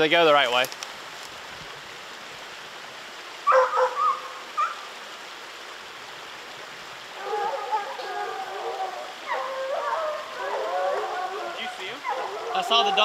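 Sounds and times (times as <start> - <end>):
dog yelp: 3.5 - 4.7, 7.2 - 13.0
hounds bawling: 3.5 - 4.7, 7.2 - 13.0.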